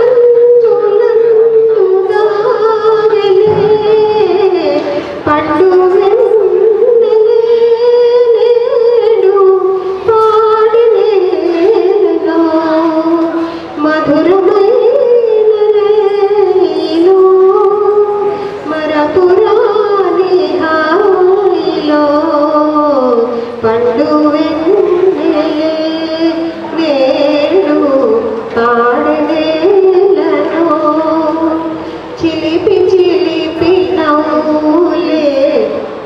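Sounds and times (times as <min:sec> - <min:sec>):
woman singing gliding notes: 0:00.0 - 0:36.0.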